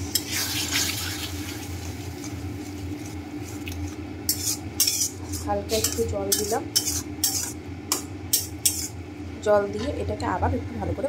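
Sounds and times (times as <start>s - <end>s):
metal spatula scraping a pan: 4.3s - 9.0s.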